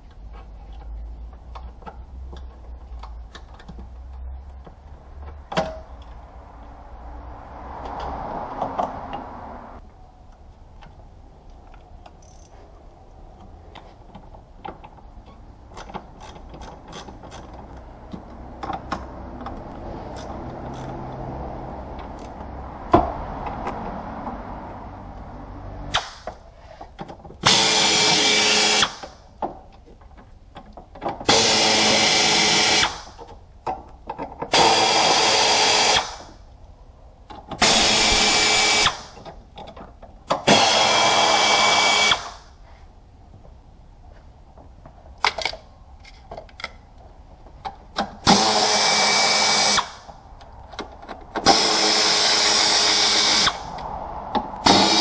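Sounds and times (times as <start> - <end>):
clicks and rattles of tools: 0.1 - 6.2, 15.7 - 21.0, 44.6 - 48.8
power tool running: 54.6 - 55.0.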